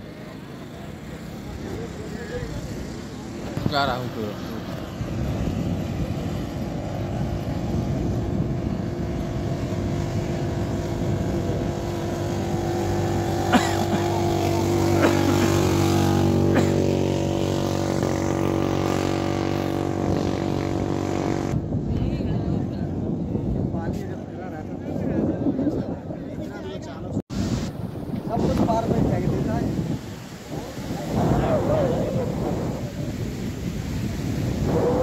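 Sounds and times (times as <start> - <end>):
quad bike engine driving past: 0.1 - 21.6.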